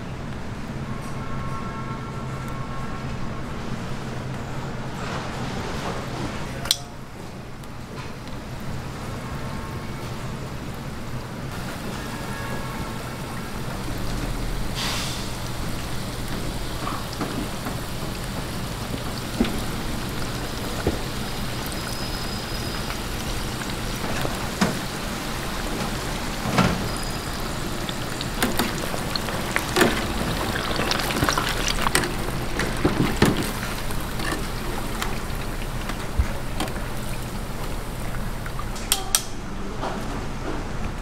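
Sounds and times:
oil sizzling in deep fryer: 7.6s - 38.8s.

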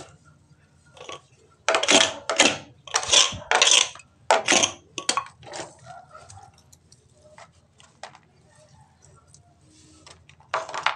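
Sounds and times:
trowel scraping cement: 1.0s - 5.8s.

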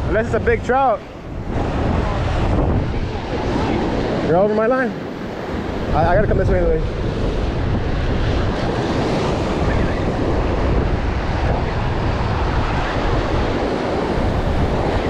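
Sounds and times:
wind buffeting microphone: 0.0s - 15.0s.

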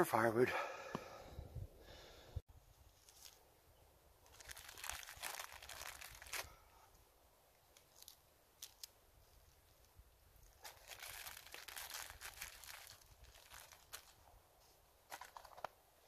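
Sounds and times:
plastic bag crinkling: 4.2s - 6.6s, 7.7s - 8.9s, 10.4s - 14.2s, 15.1s - 15.7s.

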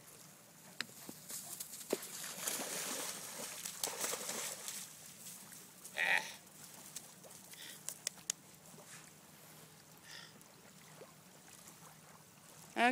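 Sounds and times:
dog splashing through water: 1.8s - 4.9s.

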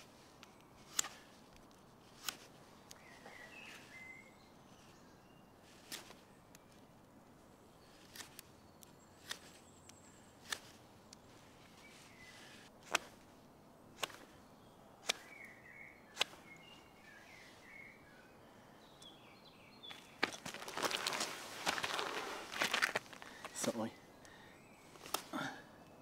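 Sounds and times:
rustle of handling: 9.2s - 13.4s, 19.9s - 23.8s
knife blade slicing wood: 12.8s - 13.2s.

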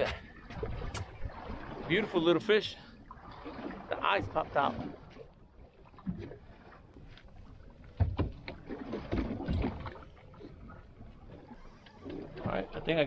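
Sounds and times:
water lapping against boat hull: 0.0s - 13.0s.

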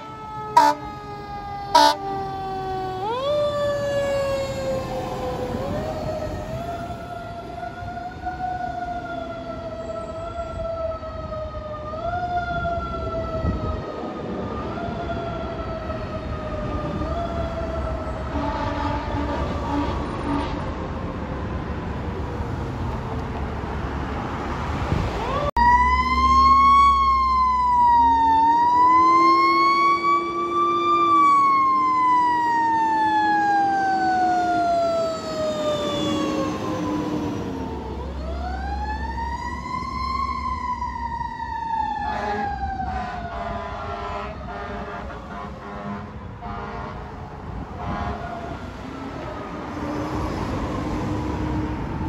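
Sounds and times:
truck engine noise: 0.0s - 8.7s
fire truck siren wailing: 0.0s - 23.2s, 24.4s - 52.0s.

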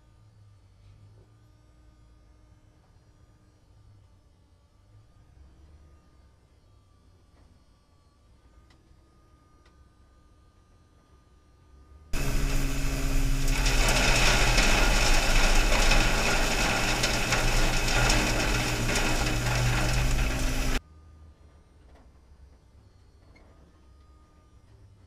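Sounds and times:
sweeper motor hum: 12.2s - 20.8s.

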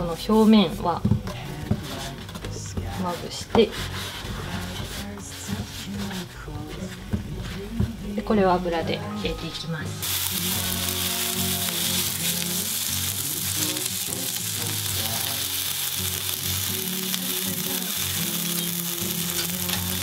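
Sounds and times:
soft background music: 0.0s - 20.0s
food sizzling in oil: 10.0s - 20.0s.

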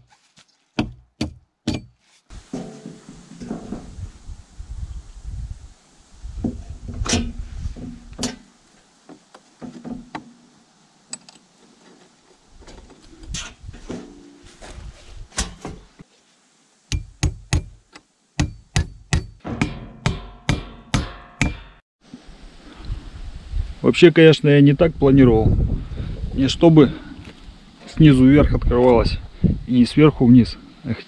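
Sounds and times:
steel sheet knocking against log wall: 0.8s - 3.8s, 18.4s - 21.8s.

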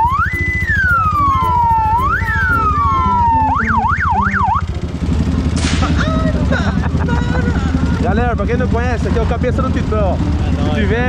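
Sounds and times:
electronic siren wailing: 0.0s - 4.8s
motorcycles idling: 0.0s - 11.0s.

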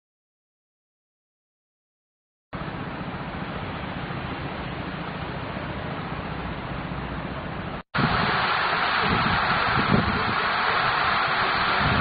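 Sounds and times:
steady rushing noise: 7.7s - 12.0s.

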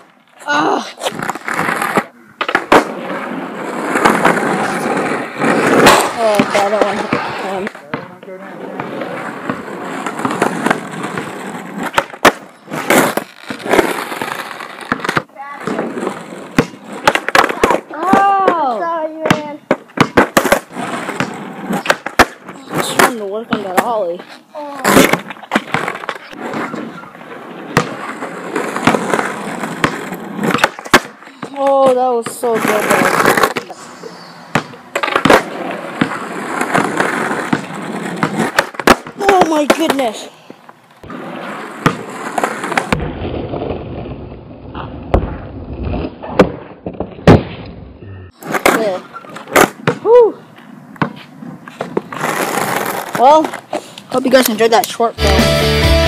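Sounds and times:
skateboard scraping: 0.0s - 56.0s
skateboard wheels rolling on pavement: 0.0s - 56.0s
skateboard clacks: 3.9s - 24.2s, 24.8s - 33.8s, 34.6s - 40.3s.

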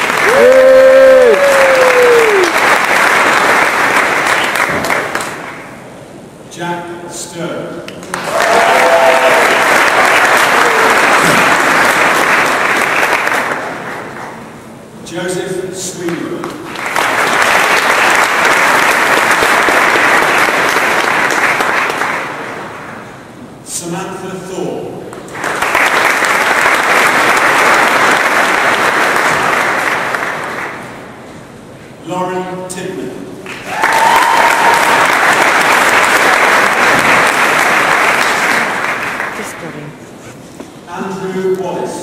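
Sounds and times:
audience applauding: 0.0s - 5.8s, 8.0s - 14.5s, 16.4s - 22.9s, 25.2s - 31.0s, 33.4s - 39.6s.

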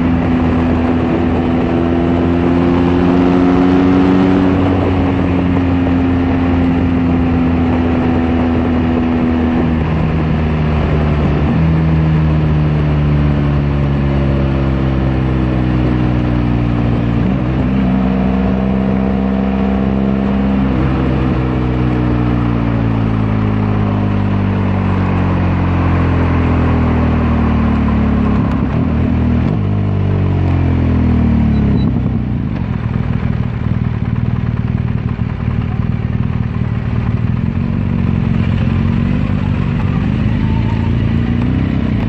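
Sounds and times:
wind noise: 0.0s - 14.4s
motorcycle engine decelerating: 0.0s - 42.0s.

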